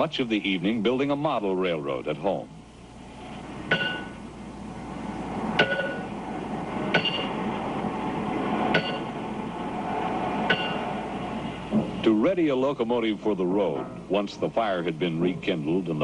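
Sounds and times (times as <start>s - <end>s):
hammer on steel clanking: 3.7s - 4.2s, 5.6s - 6.1s, 6.9s - 7.4s, 8.7s - 9.1s, 10.5s - 10.9s.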